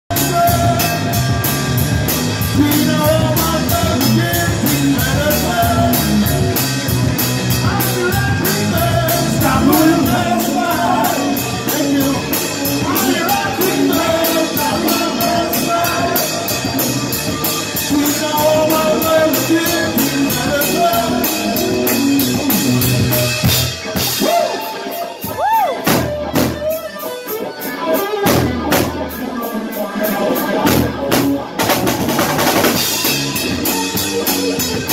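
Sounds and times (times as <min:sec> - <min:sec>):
man singing lead vocal: 0:00.1 - 0:01.2, 0:02.5 - 0:06.5, 0:07.5 - 0:17.1, 0:17.7 - 0:21.9
electric bass: 0:00.1 - 0:24.2, 0:30.6 - 0:34.9
drum kit: 0:00.1 - 0:34.9
electric guitar: 0:00.1 - 0:34.9.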